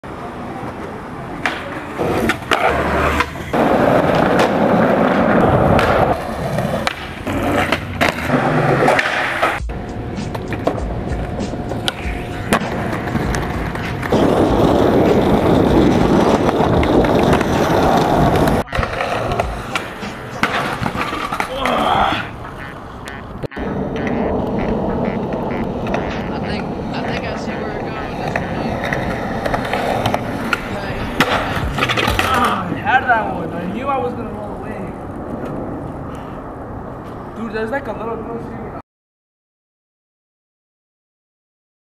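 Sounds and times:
skateboard wheels rolling on concrete: 0.0s - 38.8s
skateboard clacking: 0.5s - 32.8s.

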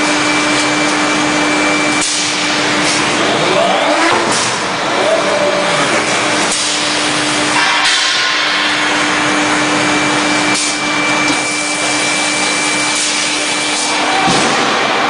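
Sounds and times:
constant machine hum: 0.0s - 15.0s.

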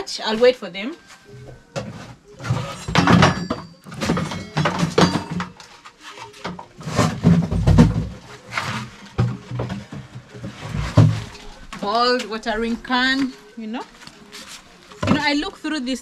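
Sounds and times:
household items clattering: 1.2s - 16.0s.

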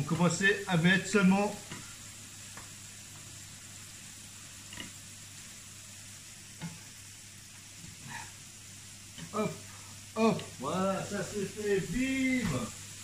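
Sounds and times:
fries sizzling in hot oil: 0.0s - 13.0s.

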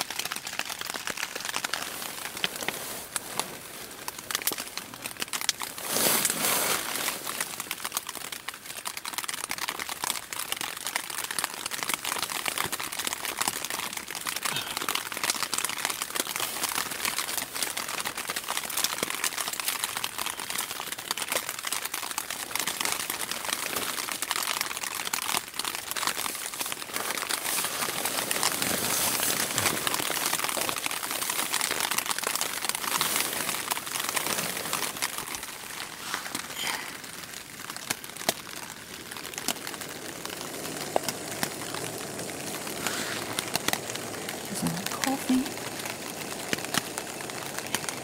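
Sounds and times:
plastic bottle crinkling: 0.0s - 48.0s
nylon gear rustling: 5.6s - 7.7s, 26.1s - 36.6s.

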